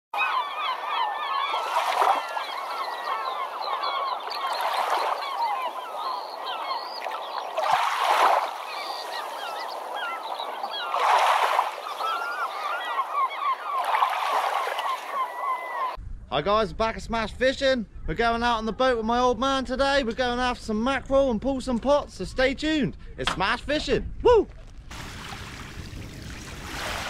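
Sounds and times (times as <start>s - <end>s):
birds chirping: 0.2s - 16.0s.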